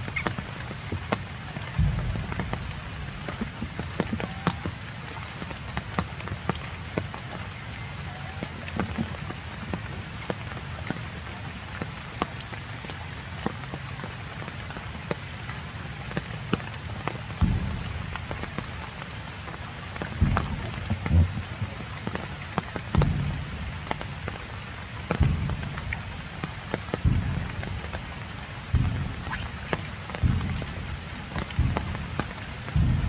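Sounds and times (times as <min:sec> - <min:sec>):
steady low rumble: 0:00.0 - 0:05.4, 0:16.8 - 0:22.0, 0:22.9 - 0:33.0
rain pattering: 0:00.0 - 0:33.0
low thump: 0:01.8 - 0:04.2, 0:17.4 - 0:18.2, 0:25.2 - 0:25.9, 0:28.7 - 0:29.4, 0:30.2 - 0:30.8, 0:31.4 - 0:33.0.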